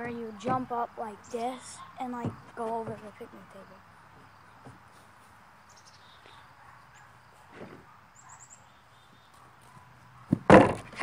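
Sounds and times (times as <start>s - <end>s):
faint bird chirps: 5.7s - 10.2s.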